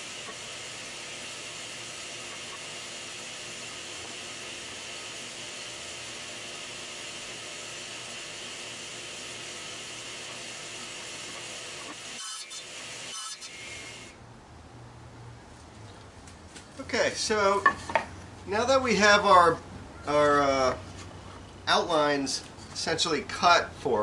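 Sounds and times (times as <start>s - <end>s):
table saw running: 0.0s - 14.1s.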